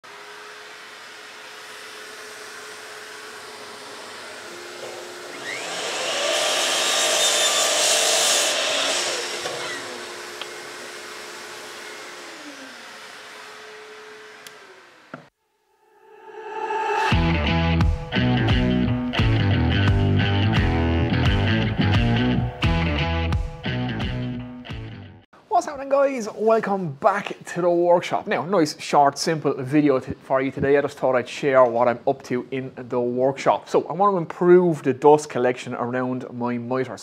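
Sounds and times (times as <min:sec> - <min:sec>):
mitre saw cutting wood: 0:00.0 - 0:15.3
music: 0:16.5 - 0:25.3.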